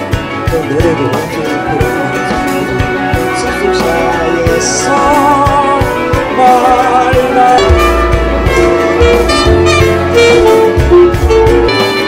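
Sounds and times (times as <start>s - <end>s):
band accompaniment with bass: 0.0s - 12.0s
saxophone melody: 1.6s - 12.0s.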